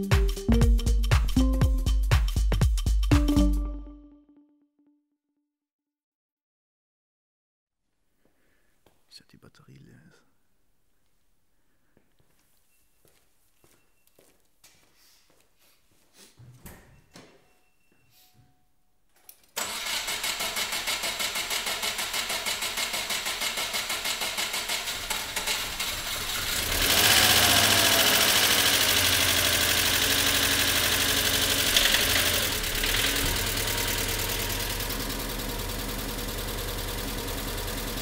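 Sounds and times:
starter motor cranking: 19.6s - 38.0s
car engine running loudly: 25.0s - 38.0s.

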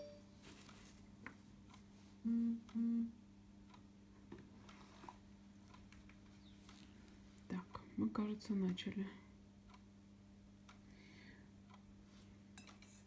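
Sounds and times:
faint low hum: 0.0s - 13.0s
person humming: 2.2s - 3.2s.

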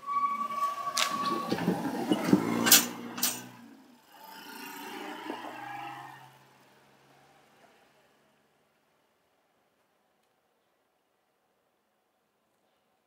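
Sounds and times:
car rolling over level crossing: 0.0s - 7.1s.

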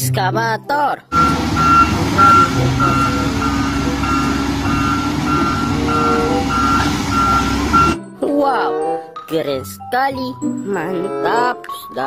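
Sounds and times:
diesel engine running: 1.1s - 8.0s
warning alarm beeping: 1.1s - 8.0s.

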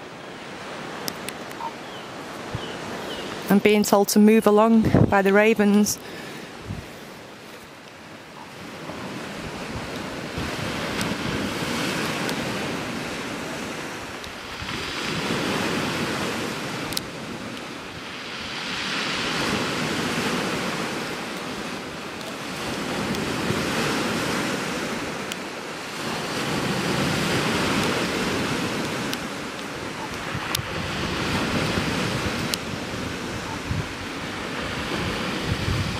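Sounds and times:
waves washing over shingle: 4.6s - 35.9s.

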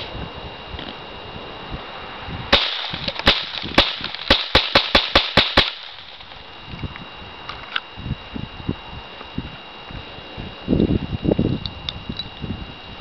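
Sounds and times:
small pistol gunshots: 2.5s - 6.3s.

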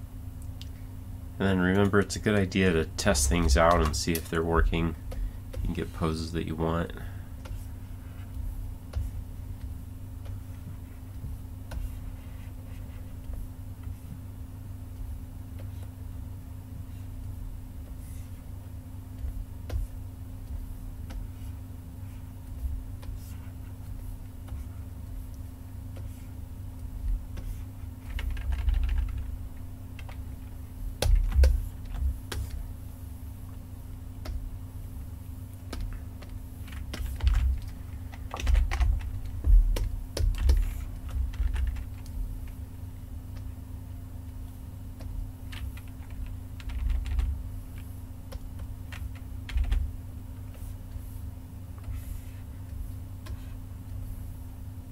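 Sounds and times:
steady low hum: 0.0s - 54.9s
keyboard keys clicking: 27.4s - 29.3s, 35.7s - 42.2s, 45.0s - 47.4s, 48.3s - 49.8s.

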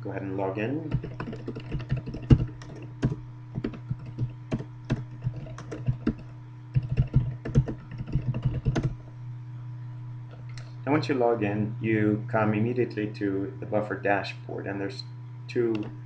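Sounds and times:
steady low hum: 0.0s - 16.0s
typing on a keyboard: 0.9s - 9.0s.

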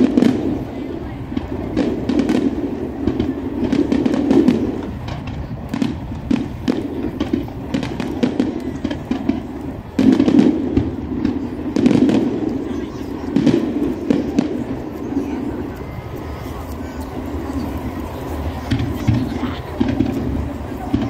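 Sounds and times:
firework crackling: 0.0s - 21.0s.

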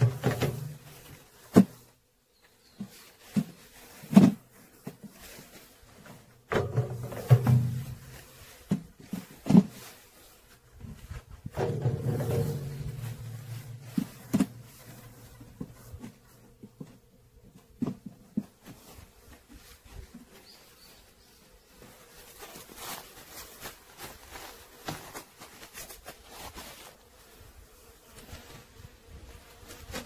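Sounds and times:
frames knocking against metal drum: 6.5s - 8.1s, 11.5s - 15.1s.

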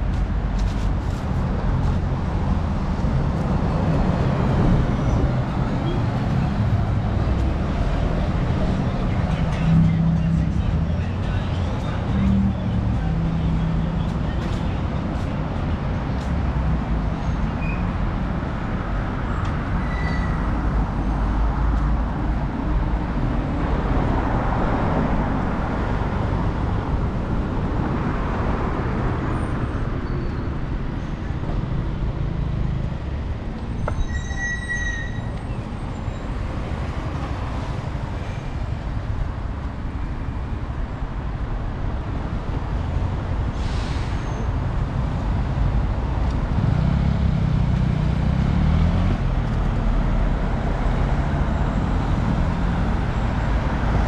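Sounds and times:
road traffic rumble: 0.0s - 54.0s
short high squeaks: 19.8s - 20.4s, 33.7s - 36.2s.

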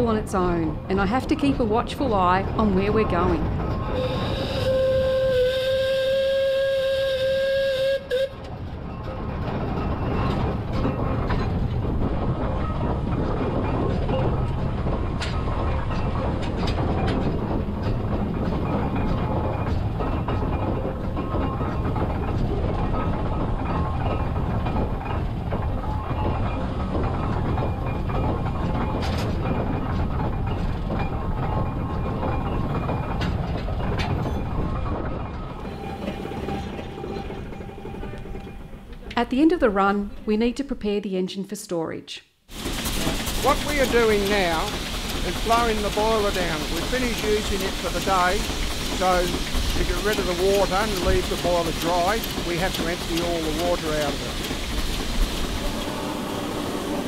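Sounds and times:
steam engine rumble and clatter: 0.0s - 40.8s, 42.5s - 57.0s
steam whistle: 3.9s - 8.5s.

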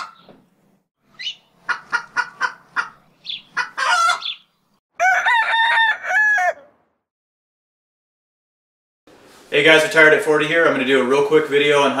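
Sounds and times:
poultry clucking: 0.0s - 0.4s, 1.2s - 6.7s
poultry long pitched call: 3.2s - 6.8s.

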